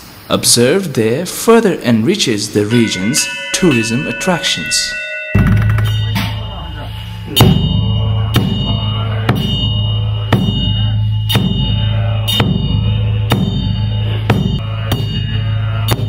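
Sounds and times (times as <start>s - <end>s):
low drone music: 3.1s - 16.0s
sharp drum hits: 5.3s - 9.6s.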